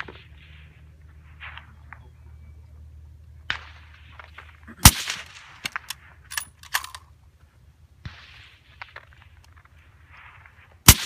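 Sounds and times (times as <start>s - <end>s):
rifle bolt clicks: 5.6s - 7.0s.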